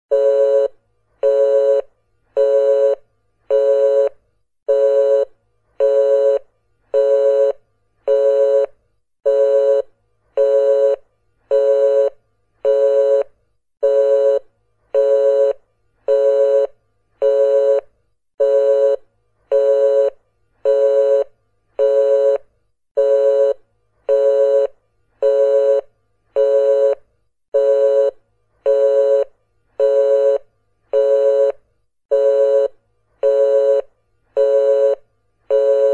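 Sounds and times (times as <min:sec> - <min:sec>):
telephone busy signal beeping: 0:34.4 - 0:35.9.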